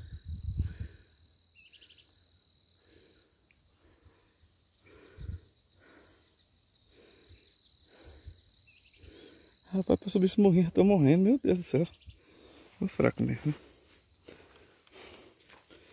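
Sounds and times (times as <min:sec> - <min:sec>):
insects trilling: 0:00.0 - 0:15.9
footsteps climbing a slope: 0:14.3 - 0:15.9.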